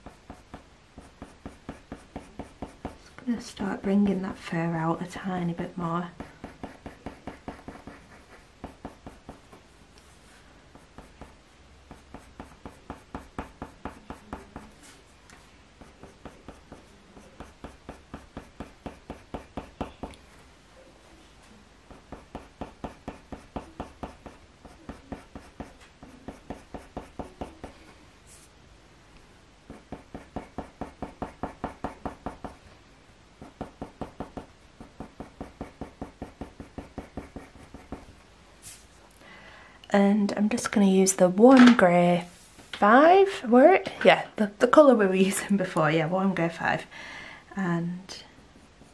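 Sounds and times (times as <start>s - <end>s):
pencil scratching on paper: 0.0s - 15.1s, 15.7s - 20.2s, 21.9s - 28.5s, 29.7s - 32.6s, 33.4s - 38.8s.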